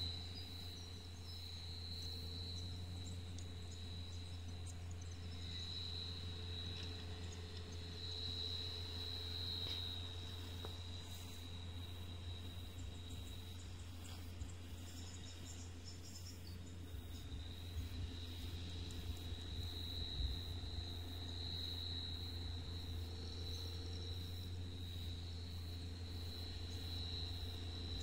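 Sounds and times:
distant tractor engine drone: 0.0 - 28.0.

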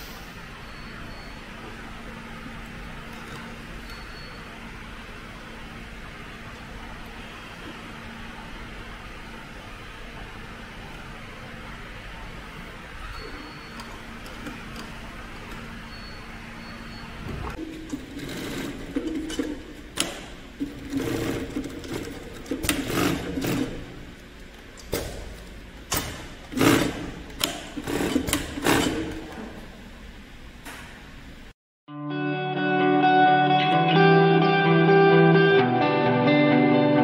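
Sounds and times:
steady machine hum: 0.0 - 31.6
sewing machine stitching: 17.5 - 24.0, 25.9 - 29.6.

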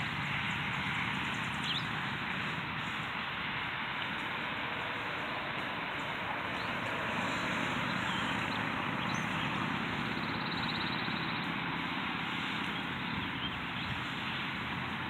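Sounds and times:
car passing: 0.0 - 15.0
traffic road noise: 0.0 - 15.0.

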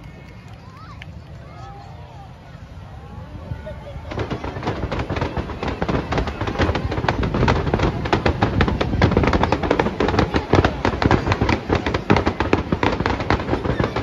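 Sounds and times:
fireworks bangs and crackles: 3.4 - 14.0.

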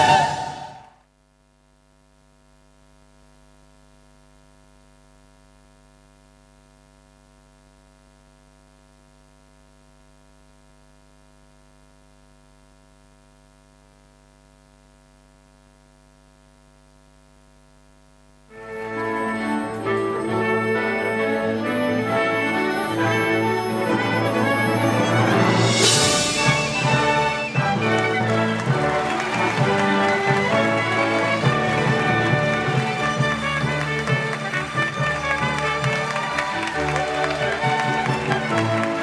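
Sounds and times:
orchestral music with brass: 0.0 - 0.9, 18.5 - 39.0
faint electrical mains hum: 0.8 - 18.8.

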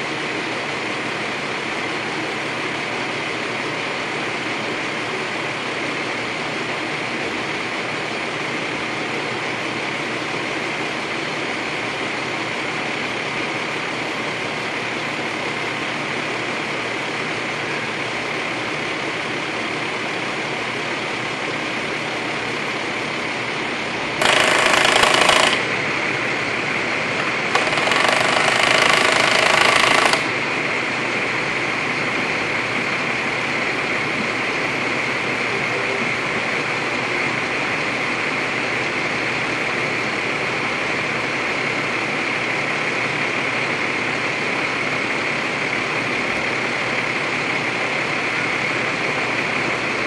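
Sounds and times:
truck engine running: 0.2 - 42.3
loud noise: 23.8 - 31.0
mechanical rattle: 24.2 - 25.8, 27.2 - 30.4.

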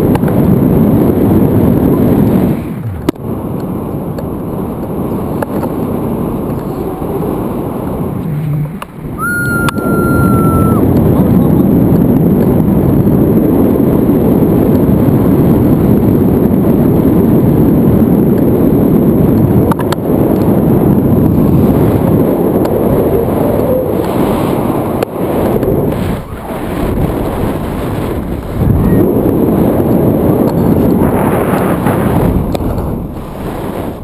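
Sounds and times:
wind rushing over microphone: 0.0 - 34.0
high beep: 9.2 - 10.8.

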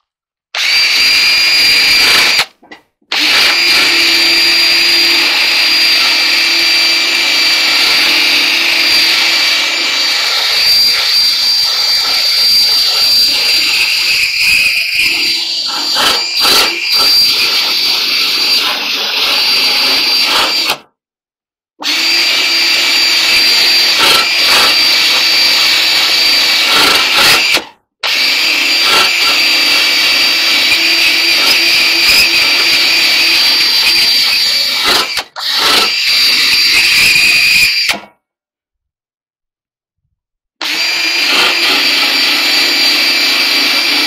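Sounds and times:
drill whine: 0.6 - 20.9, 21.8 - 38.1, 40.6 - 44.0.

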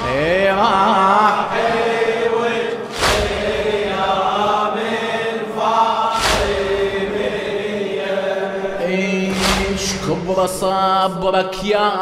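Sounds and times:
men chanting a lament: 0.0 - 12.0
chest-beating slaps: 2.8 - 4.4, 6.1 - 7.3, 9.3 - 10.4.

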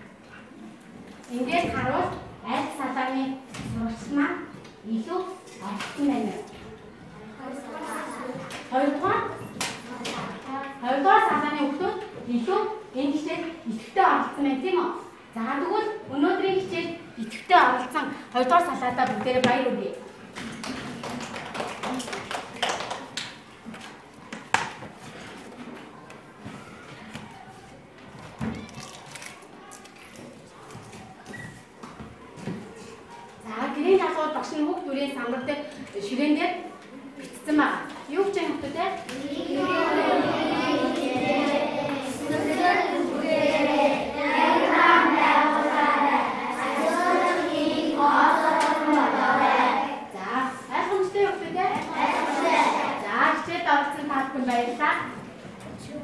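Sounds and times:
children applauding: 20.6 - 23.2
sharp hand clap: 20.6 - 23.4
children chanting in unison: 39.1 - 50.2, 51.8 - 53.1.

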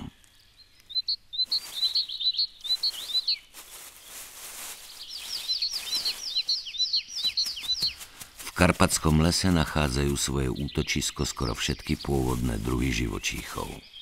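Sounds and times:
small birds chirping: 0.0 - 14.0
faint rustling: 1.4 - 10.3.

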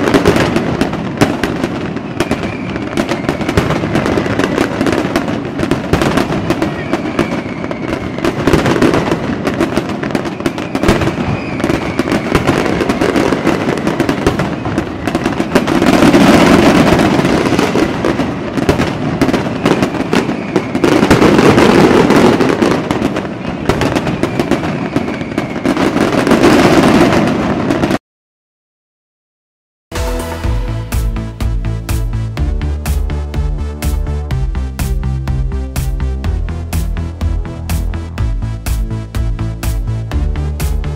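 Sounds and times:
fireworks booming: 0.0 - 28.0, 29.9 - 40.9
fireworks crackling and banging: 0.0 - 28.0, 29.9 - 40.9
fireworks whistles: 0.0 - 28.0, 29.9 - 32.1.

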